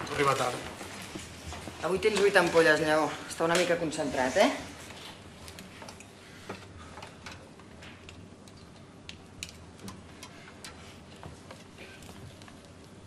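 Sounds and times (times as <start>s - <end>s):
light clicks of iv tubing: 5.0s - 13.0s.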